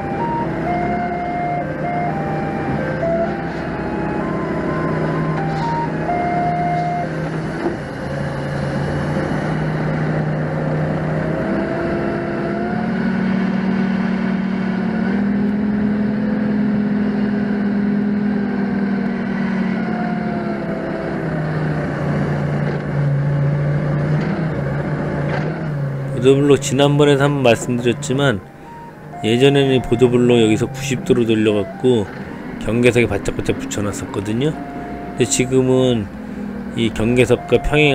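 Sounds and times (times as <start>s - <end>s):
forklift engine running: 0.0s - 37.9s.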